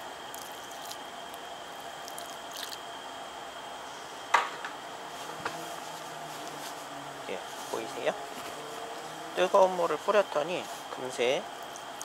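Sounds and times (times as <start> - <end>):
steady background hiss: 0.0 - 12.0
water pouring onto wet fabric: 0.3 - 1.0, 2.0 - 2.8
soft squishing and dripping: 0.3 - 2.8, 11.6 - 12.0.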